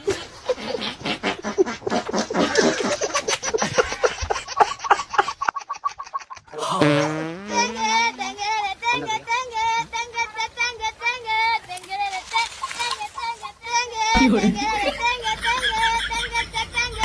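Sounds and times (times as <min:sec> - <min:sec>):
bursts of laughter: 0:00.0 - 0:07.0, 0:14.1 - 0:17.0.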